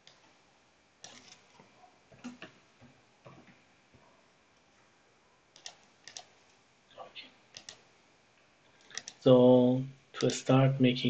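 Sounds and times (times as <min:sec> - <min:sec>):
keyboard typing: 0:01.0 - 0:01.5, 0:05.5 - 0:06.4, 0:07.5 - 0:07.8, 0:08.8 - 0:09.3, 0:10.2 - 0:10.5.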